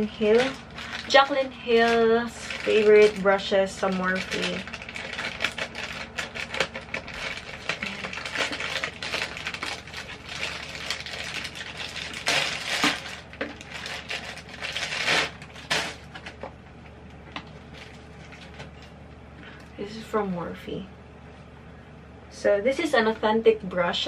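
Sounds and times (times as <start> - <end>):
packaging crinkling and rustling: 0.0 - 19.0.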